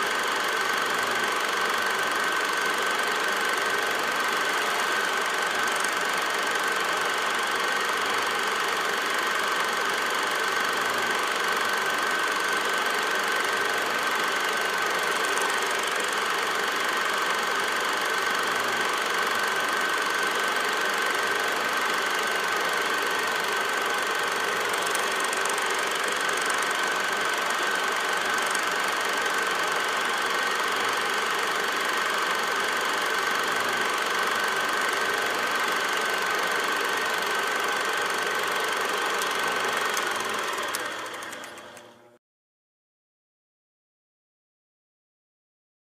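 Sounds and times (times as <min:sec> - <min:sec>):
film projector whirring: 0:00.0 - 0:42.2.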